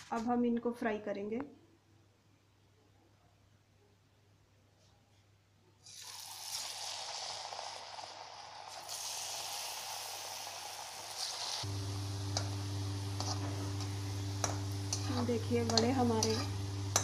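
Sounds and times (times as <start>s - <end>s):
dough sizzling in hot oil: 5.8s - 17.0s
low steady hum: 11.6s - 17.0s.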